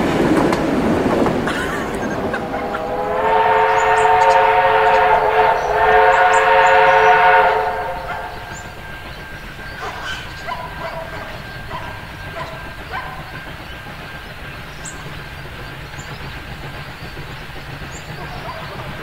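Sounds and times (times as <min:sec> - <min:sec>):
steam locomotive whistle: 0:01.7 - 0:15.1.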